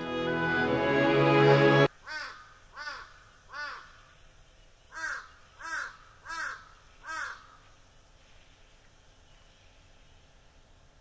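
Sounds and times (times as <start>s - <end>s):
crow cawing: 2.0s - 4.1s, 4.9s - 7.7s.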